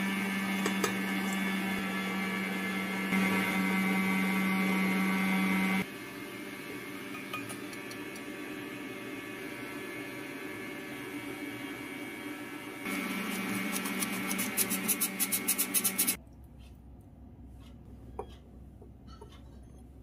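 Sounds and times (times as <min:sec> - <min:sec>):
hand-crank flour sifter rasping: 0:12.9 - 0:16.7.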